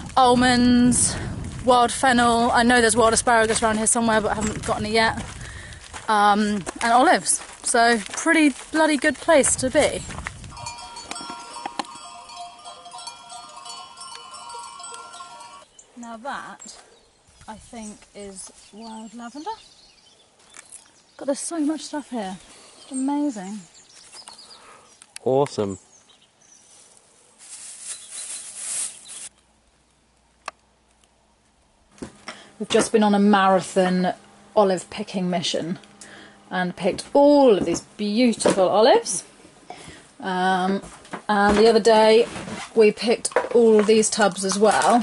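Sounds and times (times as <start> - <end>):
leaves and branches rustling: 0.0 - 34.7
sheep bells clanking: 10.5 - 15.7.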